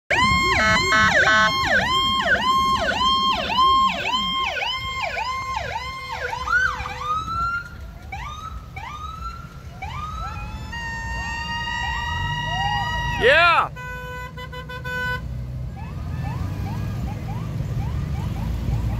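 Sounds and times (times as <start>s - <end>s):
fire truck electronic siren: 0.1s - 13.7s, 15.7s - 18.9s
rising siren whoops: 0.1s - 13.7s, 15.7s - 18.9s.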